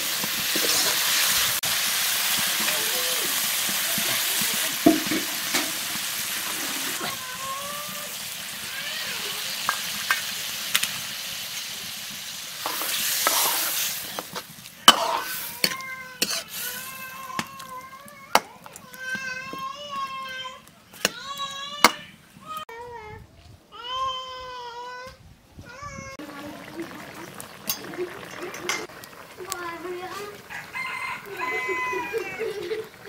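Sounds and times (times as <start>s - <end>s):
vegetables sizzling in oil: 0.0s - 22.6s, 26.2s - 33.0s
ladle stirring: 12.6s - 20.2s, 26.2s - 30.8s.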